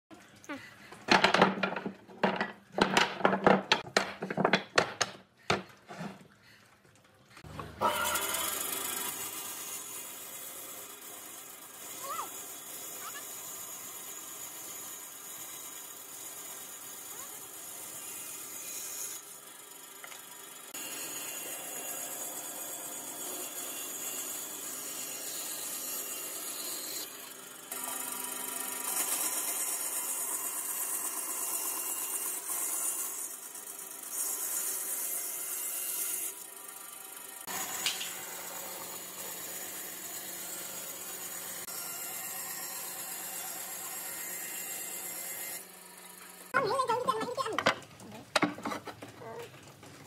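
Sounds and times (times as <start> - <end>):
band saw cutting wood: 7.4 - 47.6.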